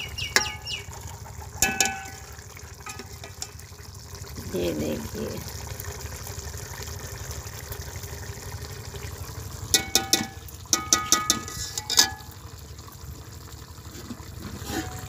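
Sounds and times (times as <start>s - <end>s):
low steady rumble: 0.0s - 15.0s
ladle clinking against metal pot: 0.3s - 0.7s, 1.6s - 3.6s, 9.7s - 12.3s.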